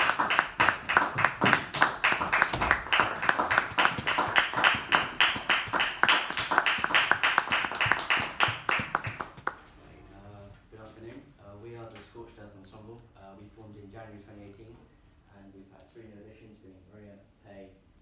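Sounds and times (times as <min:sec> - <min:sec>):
audience applauding: 0:00.0 - 0:09.6
close hand claps: 0:00.0 - 0:09.6.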